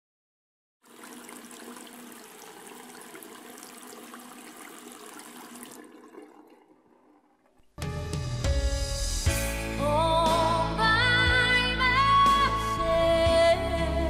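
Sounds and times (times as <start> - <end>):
water running: 0.8 - 7.9.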